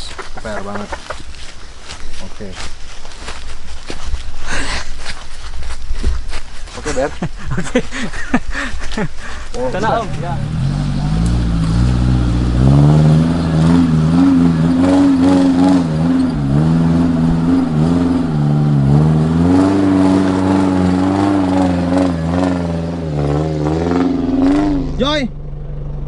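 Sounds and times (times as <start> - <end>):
off-road vehicle engine revving: 9.3 - 26.0.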